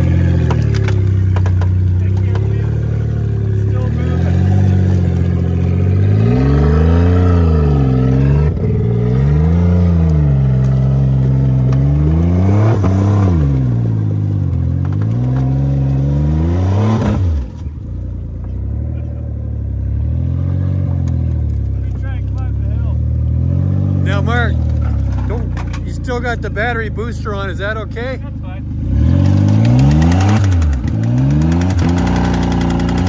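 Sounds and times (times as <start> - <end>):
loud engine revving: 0.0 - 17.6, 18.6 - 21.4, 22.0 - 28.0, 28.6 - 33.0.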